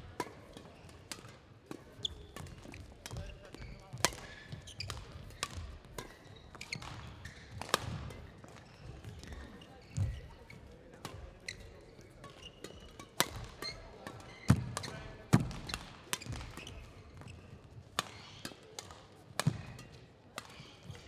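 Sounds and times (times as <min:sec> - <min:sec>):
rackets hitting shuttlecock: 0:00.1 - 0:09.4, 0:10.9 - 0:21.0
shoe squeak: 0:04.6 - 0:04.9, 0:06.2 - 0:07.6, 0:16.2 - 0:17.5.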